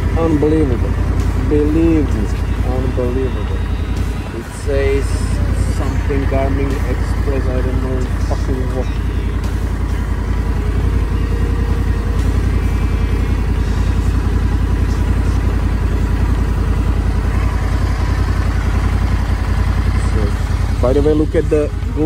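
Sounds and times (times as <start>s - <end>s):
motorcycle engine idling: 0.0s - 22.0s.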